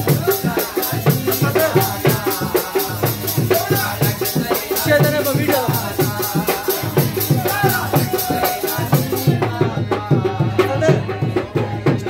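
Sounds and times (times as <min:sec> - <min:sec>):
rattling shaker percussion: 0:00.0 - 0:09.6
hand drum beat: 0:00.0 - 0:12.0
harmonium music: 0:00.0 - 0:12.0
person singing: 0:00.0 - 0:12.0.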